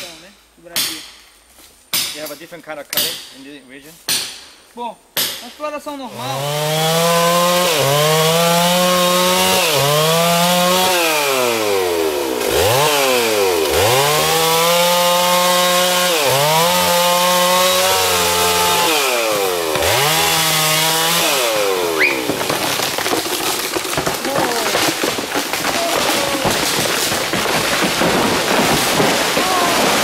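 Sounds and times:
chainsaw cutting tree trunk: 6.1 - 30.0.

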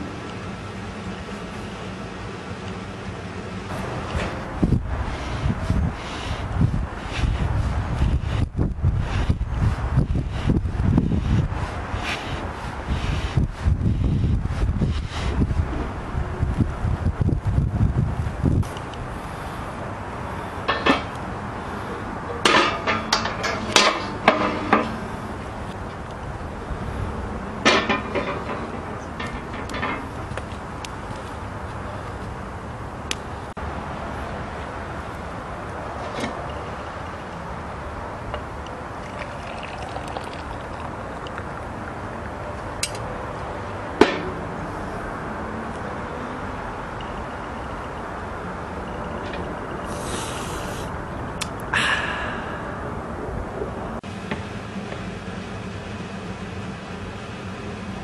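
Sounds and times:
pot clanking on metal grate: 22.4 - 24.9
coffee pouring into a mug: 39.0 - 41.7.

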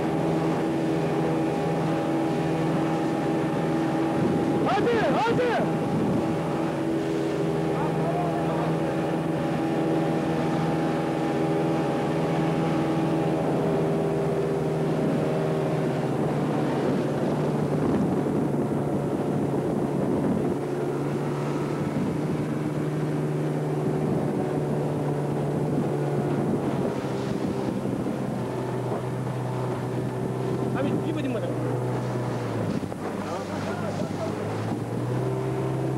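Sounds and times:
motorboat engine running: 0.0 - 35.9
water rushing past hull: 0.0 - 35.9
wind buffeting microphone: 0.0 - 35.9.

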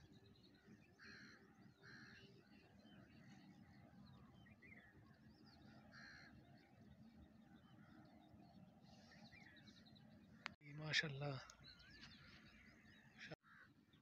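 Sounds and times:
birds chirping: 0.0 - 14.0
crow cawing: 1.0 - 2.3, 5.7 - 6.4, 13.4 - 13.8.

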